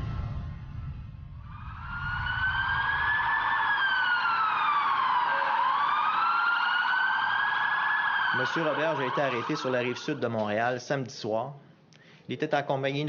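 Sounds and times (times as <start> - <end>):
emergency vehicle siren wailing: 0.8 - 10.5.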